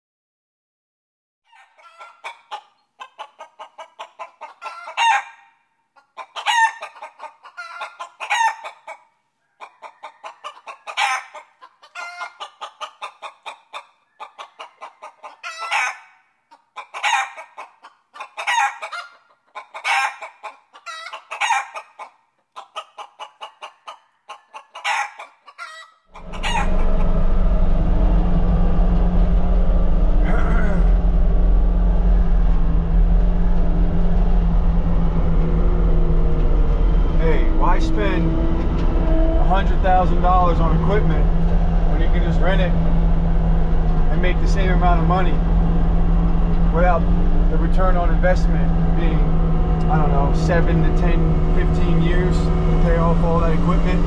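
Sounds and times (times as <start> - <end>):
chicken clucking and cackling: 1.5 - 54.0
diesel engine droning: 26.1 - 54.0.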